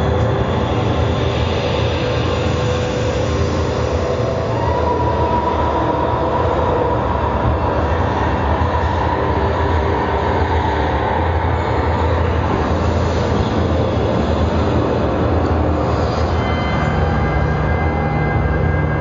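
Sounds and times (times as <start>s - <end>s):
dense low rumble drone: 0.0s - 19.0s.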